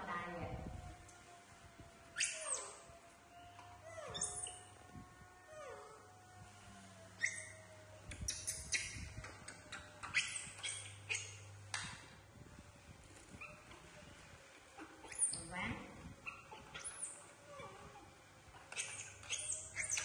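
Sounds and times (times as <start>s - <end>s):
baby monkey crying: 4.0s - 4.7s, 16.3s - 20.0s.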